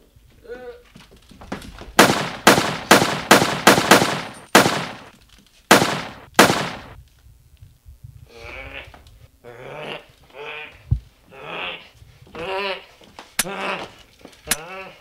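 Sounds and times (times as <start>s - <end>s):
handgun gunshots: 2.0s - 5.1s, 5.7s - 7.0s.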